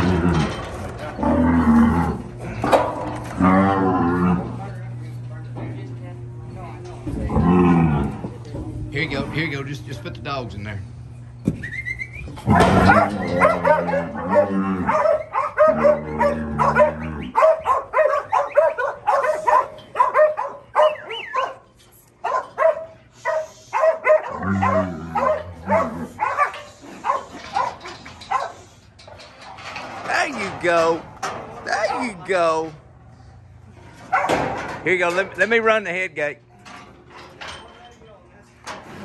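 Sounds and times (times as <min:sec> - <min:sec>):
dogs barking and yipping: 0:12.5 - 0:28.8, 0:34.1 - 0:34.5.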